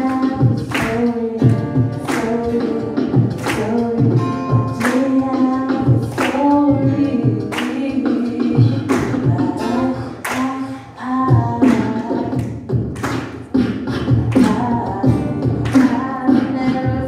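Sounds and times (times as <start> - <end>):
woman singing: 0.0 - 12.7, 13.5 - 17.0
acoustic guitar: 0.0 - 17.0
beatboxing: 0.0 - 17.0.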